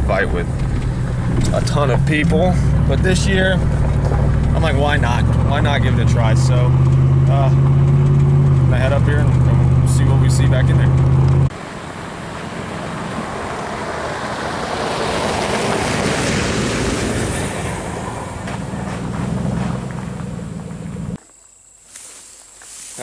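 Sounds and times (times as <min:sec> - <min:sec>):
pickup truck engine passing: 0:00.0 - 0:21.2
tyres on gravel: 0:00.0 - 0:23.0.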